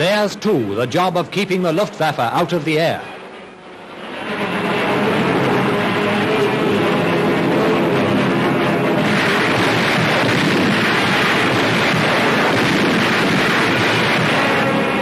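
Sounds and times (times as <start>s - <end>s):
faint music: 0.0s - 9.0s
loud rushing roar: 0.0s - 15.0s.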